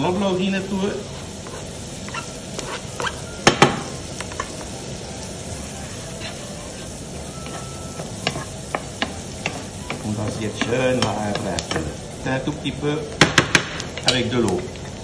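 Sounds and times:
garlic and onion sizzling in a pan: 0.0s - 15.0s
wooden spatula scraping a pan: 0.7s - 3.4s, 5.6s - 12.0s.

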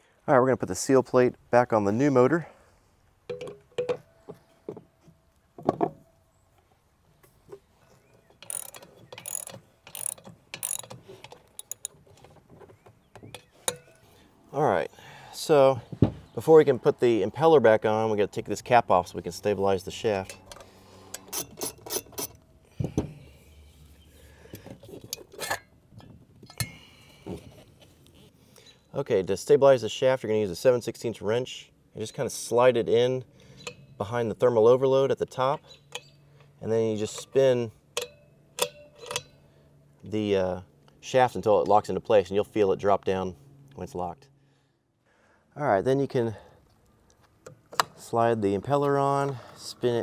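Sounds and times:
ratchet wrench clicking: 8.4s - 11.9s
small metallic clicks and clinks: 8.4s - 12.3s, 35.9s - 39.4s.

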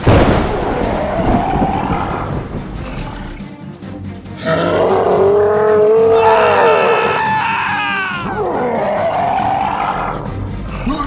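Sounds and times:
background music: 0.0s - 11.0s
person wailing and screaming: 4.4s - 10.3s.

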